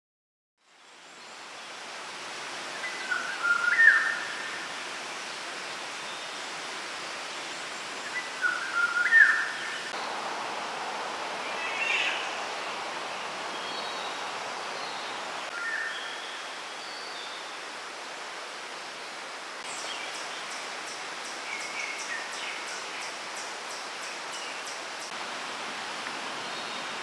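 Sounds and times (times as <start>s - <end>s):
bird singing: 2.8s - 4.4s, 8.0s - 9.9s
rushing background noise: 9.8s - 15.5s.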